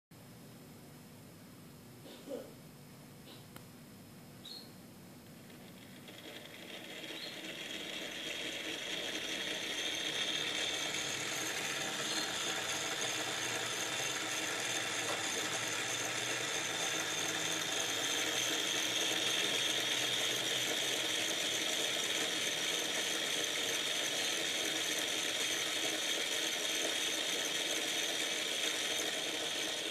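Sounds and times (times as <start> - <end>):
small electric motor whirring: 5.4 - 29.9.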